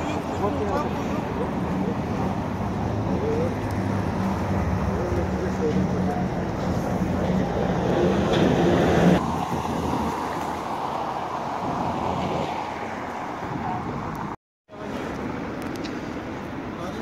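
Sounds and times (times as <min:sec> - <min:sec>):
traffic noise: 0:00.0 - 0:17.0
wind buffeting microphone: 0:06.5 - 0:14.4.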